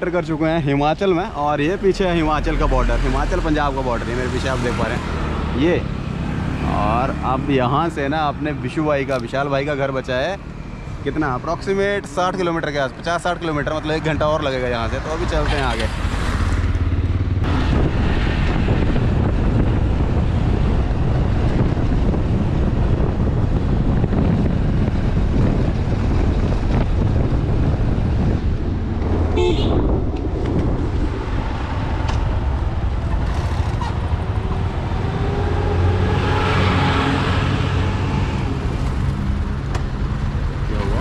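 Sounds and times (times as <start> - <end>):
wind rushing over microphone: 14.0 - 41.0
short horn toot: 29.4 - 29.9.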